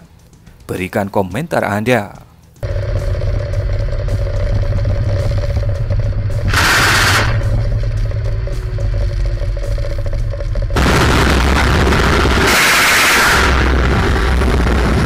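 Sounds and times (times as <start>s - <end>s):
faint turbine whine: 2.6s - 15.0s
helicopter rotor and engine drone: 2.6s - 15.0s
loud rushing burst: 6.3s - 7.9s, 10.8s - 15.0s.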